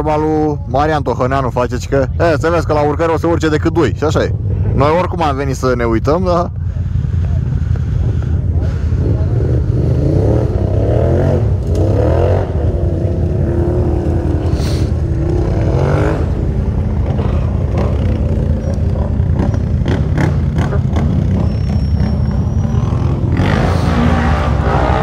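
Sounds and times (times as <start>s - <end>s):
atv engine revving: 7.7s - 25.0s
atv engine idling: 12.5s - 23.2s.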